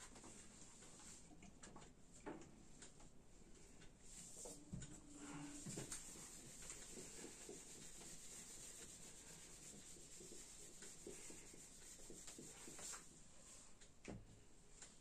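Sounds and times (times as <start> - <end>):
eraser rubbing on whiteboard: 5.6 - 13.1.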